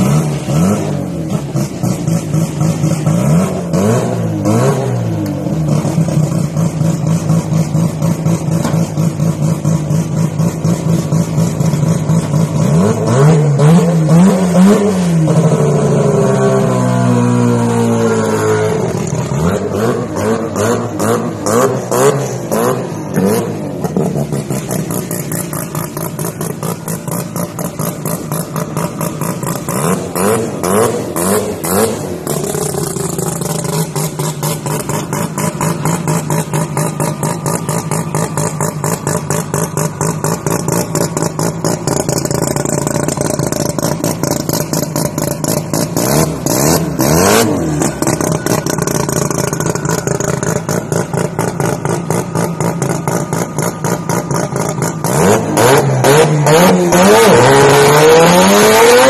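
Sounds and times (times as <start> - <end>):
engine revving: 0.0 - 7.4, 12.0 - 59.0
rotary engine idling: 23.8 - 30.2, 31.2 - 55.1.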